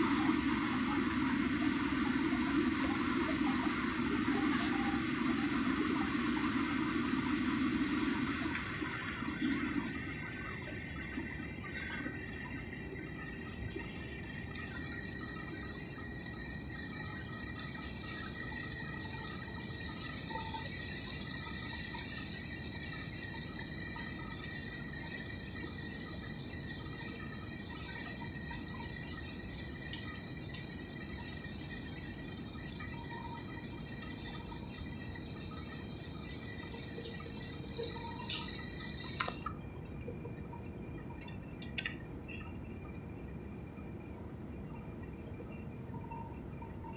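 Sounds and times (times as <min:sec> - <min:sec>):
airliner engines and rushing air: 0:00.0 - 0:46.9
high steady whine: 0:00.0 - 0:46.9.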